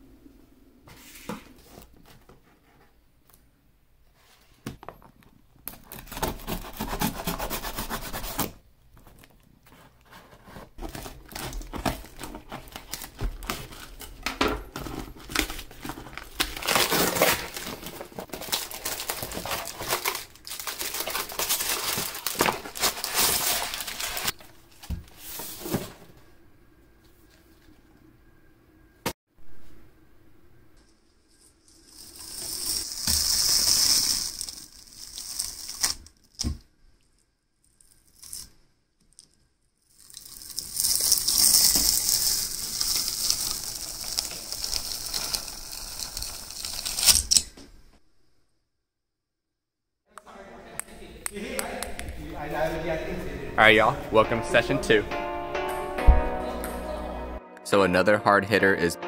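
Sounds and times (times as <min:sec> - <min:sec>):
packaging crinkling and rustling: 0:09.0 - 0:25.7, 0:31.8 - 0:36.5, 0:40.0 - 0:47.6
packing tape cut and torn: 0:14.8 - 0:24.4, 0:32.2 - 0:36.6, 0:40.2 - 0:47.6.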